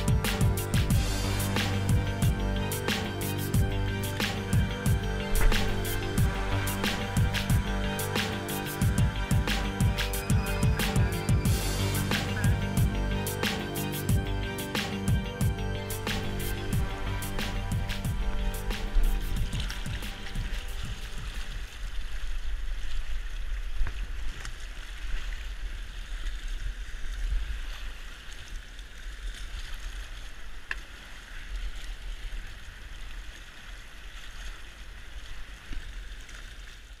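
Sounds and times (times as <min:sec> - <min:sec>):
river water rushing and splashing: 0:00.0 - 0:37.0
low rumble on microphone: 0:15.2 - 0:23.4.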